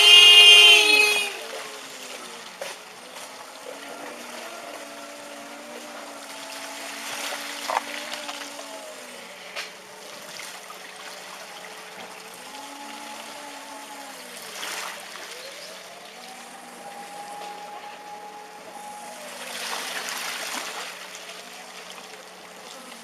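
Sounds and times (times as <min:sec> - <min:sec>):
car horns wavering: 0:00.0 - 0:01.7
floodwater rushing: 0:00.0 - 0:23.0.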